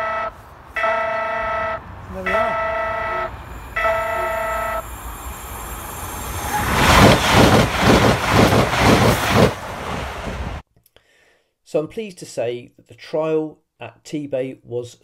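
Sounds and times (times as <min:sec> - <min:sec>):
horn-like warning tone: 0:00.0 - 0:05.6
train wheels clattering over rails: 0:06.5 - 0:10.6.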